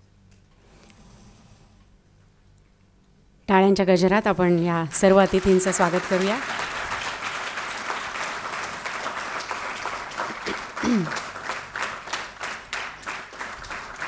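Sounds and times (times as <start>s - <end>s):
audience applauding: 5.0s - 14.0s.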